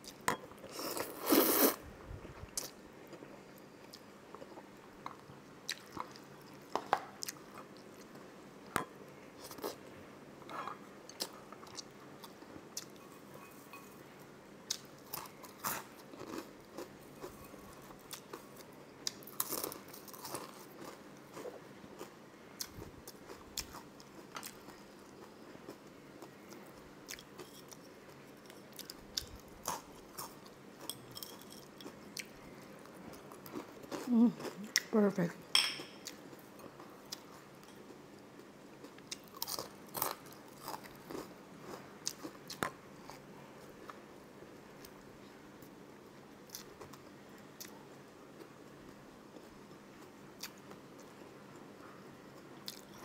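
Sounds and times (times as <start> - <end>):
person chewing and crunching: 2.5 - 8.1, 14.7 - 34.9, 35.8 - 43.3, 52.4 - 53.0.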